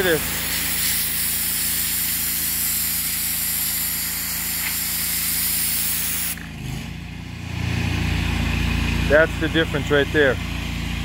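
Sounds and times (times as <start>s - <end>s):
pressure washer spray hissing: 0.0s - 6.5s
engine humming: 5.9s - 11.0s.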